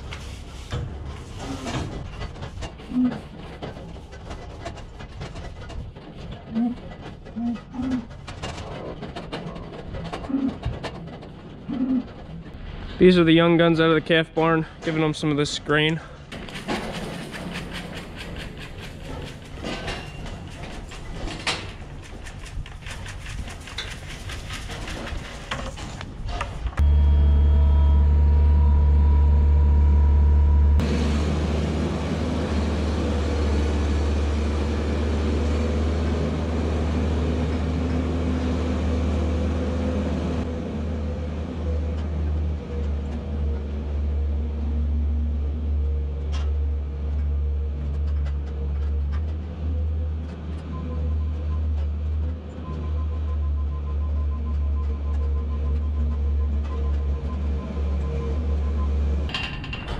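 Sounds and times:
loader engine running: 0:00.0 - 0:59.9
knocks and clatter at metal feed bunk: 0:00.7 - 0:12.5, 0:16.3 - 0:26.6, 0:59.3 - 0:59.9.

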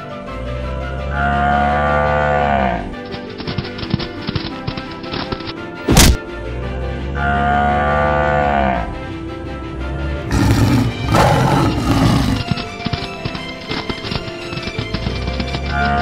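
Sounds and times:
background music: 0:00.0 - 0:16.0
cow mooing: 0:01.1 - 0:03.0, 0:07.2 - 0:09.0, 0:10.3 - 0:12.6
harsh animal calls: 0:10.3 - 0:12.7.

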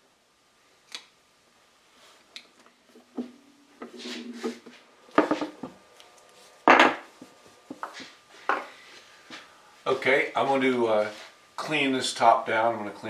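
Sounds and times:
objects knocking on wooden workbench: 0:04.4 - 0:05.8, 0:06.6 - 0:07.1, 0:07.7 - 0:08.7.

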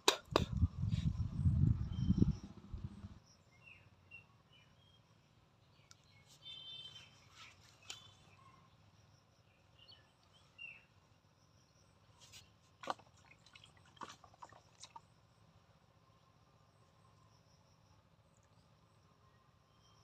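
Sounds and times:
bird chirp: 0:00.6 - 0:12.6, 0:18.3 - 0:20.0.

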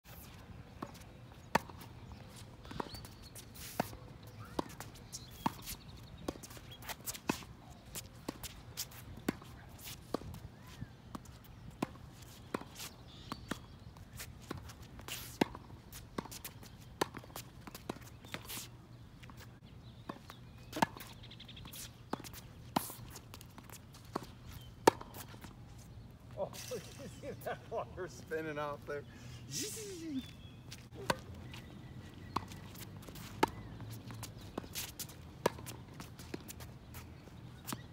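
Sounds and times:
footsteps on wet court: 0:00.1 - 0:25.9, 0:30.2 - 0:37.9
tennis ball off racket strings: 0:22.1 - 0:25.3, 0:32.3 - 0:35.8.

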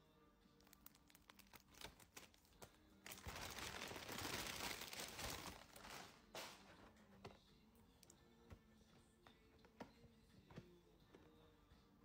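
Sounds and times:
plastic packaging crinkling: 0:00.6 - 0:06.4.

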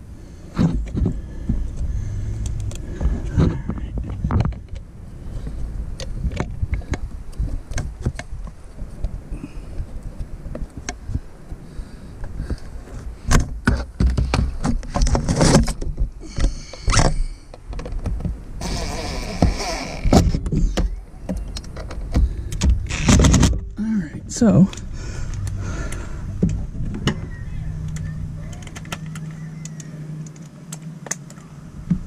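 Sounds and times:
scraping and rustling: 0:12.3 - 0:23.8.

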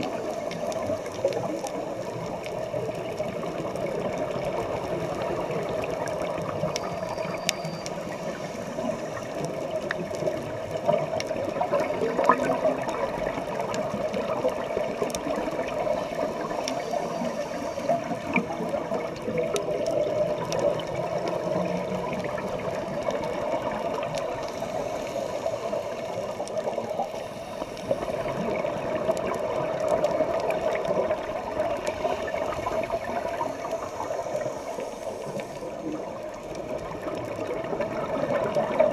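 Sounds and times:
bubbles gurgling: 0:00.0 - 0:38.9
faint clicks: 0:00.0 - 0:38.9
regulator breathing underwater: 0:24.4 - 0:26.3, 0:27.0 - 0:28.6.

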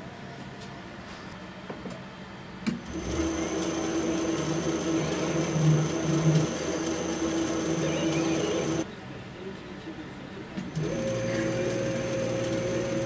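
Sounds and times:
lathe motor hum and whine: 0:02.7 - 0:08.8, 0:10.7 - 0:13.0.

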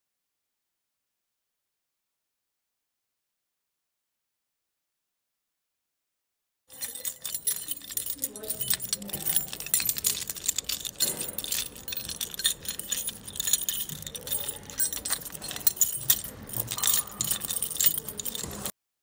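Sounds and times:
metallic jingling and clinking: 0:06.7 - 0:18.7.

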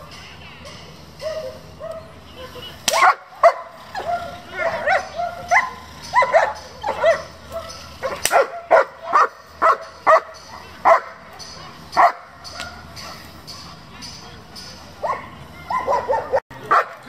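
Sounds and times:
dog barking excitedly: 0:00.7 - 0:11.3, 0:12.0 - 0:13.3, 0:15.0 - 0:17.0
dog whining yelps: 0:01.2 - 0:11.1, 0:15.0 - 0:16.4
sharp crack: 0:02.8 - 0:03.2, 0:08.1 - 0:08.5.

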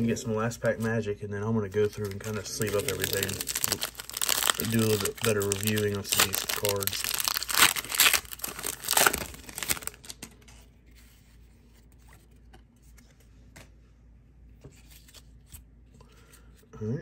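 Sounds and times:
foil wrapper tearing and crinkling: 0:01.7 - 0:10.3.

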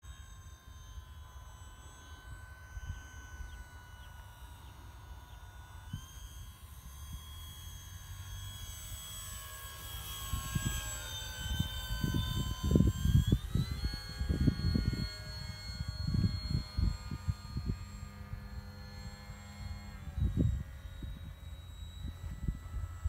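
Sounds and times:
model plane motor whining: 0:00.0 - 0:23.0
wind buffeting microphone: 0:10.3 - 0:23.0.

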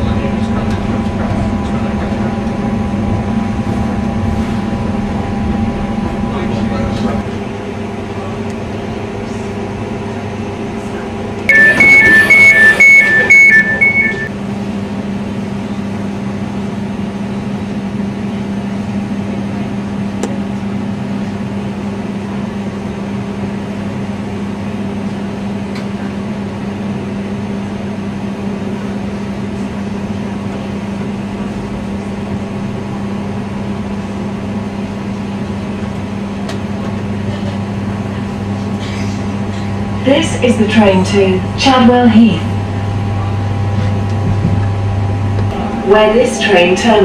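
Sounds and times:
electric train hum: 0:00.0 - 0:47.0
door warning beeps: 0:11.5 - 0:14.3.

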